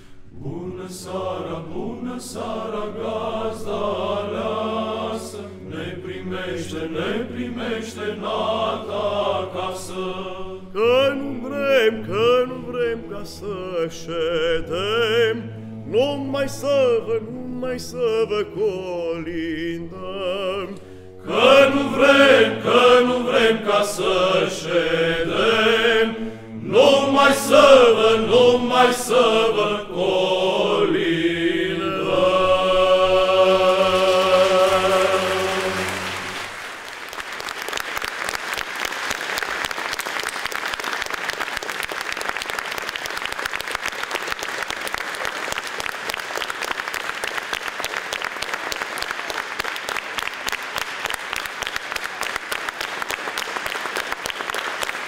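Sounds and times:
male choir singing: 0.3 - 36.6
audience applause: 33.7 - 55.0.

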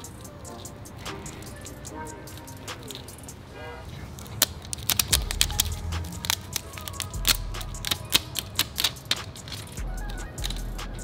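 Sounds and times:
music with deep bass: 4.8 - 11.0.

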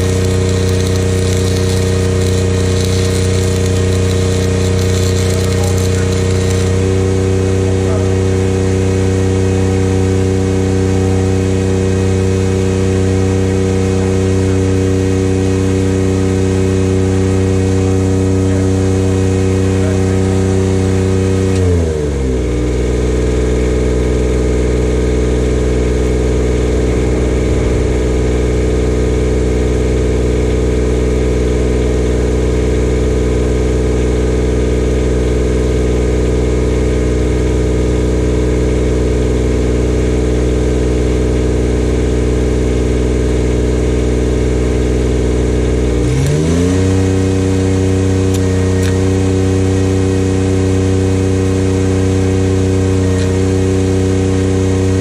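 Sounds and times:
stick welding crackle: 0.0 - 7.0
welder engine running: 0.0 - 55.0.

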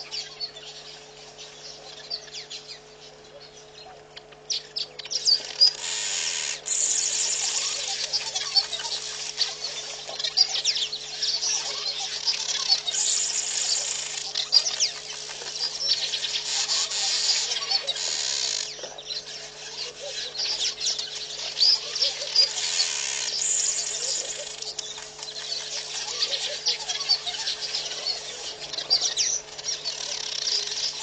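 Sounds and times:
steady low hum: 0.0 - 31.0
wild birds chirping: 0.0 - 31.0
high buzzing hiss: 5.5 - 18.9, 22.3 - 27.9.

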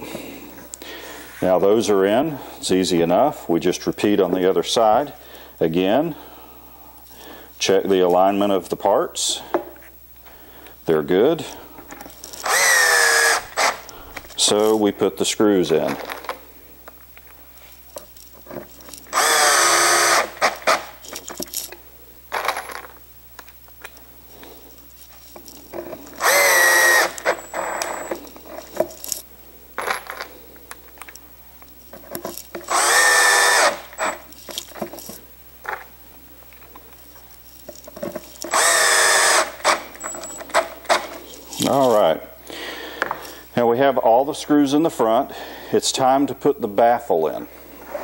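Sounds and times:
drill driving screws into wood: 12.4 - 14.2, 19.1 - 21.0, 26.2 - 28.2, 32.6 - 34.3, 38.5 - 41.1.

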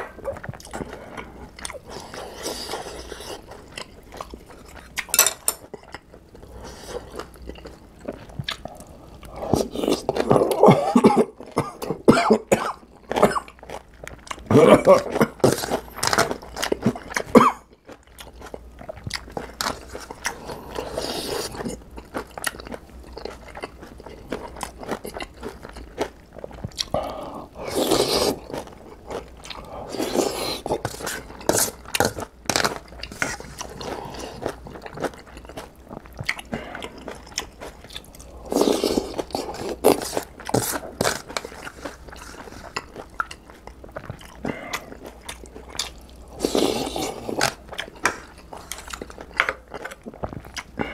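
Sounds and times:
man chewing noodles: 0.0 - 50.9
slurping: 26.8 - 28.5, 46.3 - 47.6.

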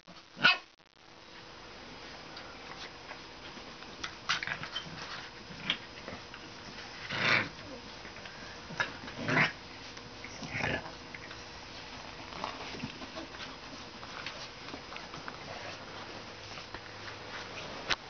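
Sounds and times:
puppies growling and yapping: 4.3 - 16.6.

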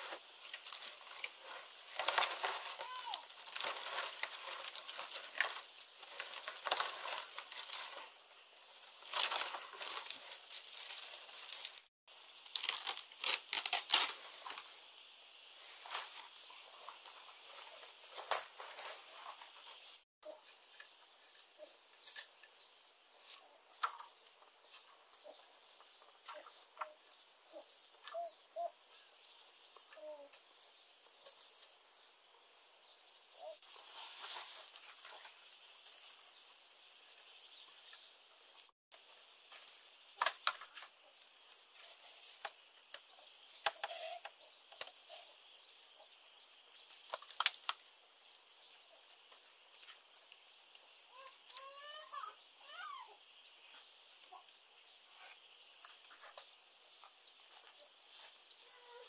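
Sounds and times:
insects chirring: 0.0 - 59.0
knife splitting bamboo: 12.5 - 14.6.

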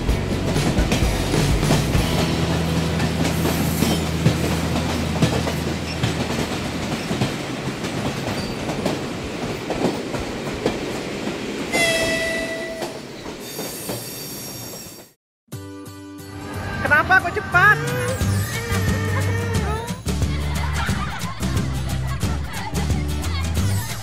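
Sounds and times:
train wheels clicking on track: 0.0 - 15.1.

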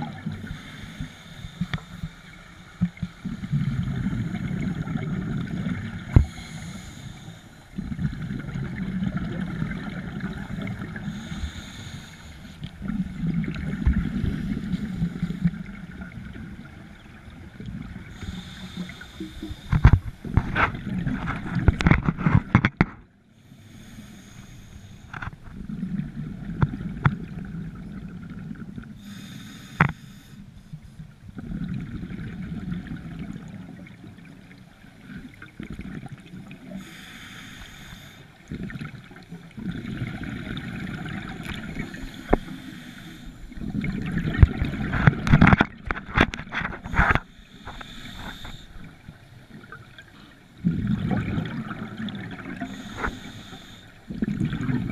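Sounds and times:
gurgling exhaled bubbles: 2.8 - 6.4, 7.8 - 11.3, 12.7 - 18.5, 31.4 - 34.4, 38.5 - 42.3, 43.5 - 47.3, 48.2 - 53.2, 54.1 - 54.9
regulator hissing inhalations: 11.1 - 12.6, 18.1 - 19.9, 23.4 - 25.1, 29.0 - 30.4, 36.8 - 38.3, 41.8 - 43.5, 47.2 - 48.9, 52.6 - 54.0.

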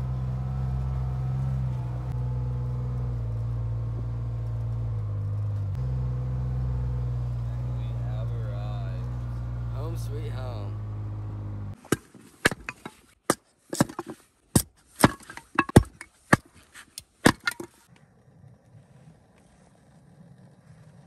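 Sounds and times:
hatchet chopping wood: 11.8 - 17.8.

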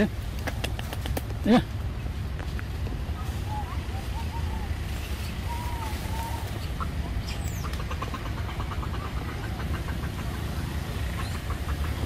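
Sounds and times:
steady low rumble: 0.0 - 12.0
short arched animal calls: 3.2 - 10.4.

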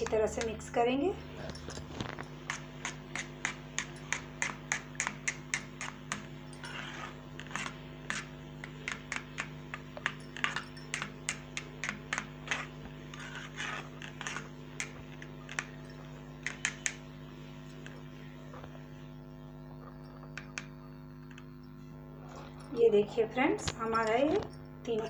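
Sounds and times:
steady low hum: 0.0 - 25.0
spoon scraping metal bowl: 1.4 - 17.1.

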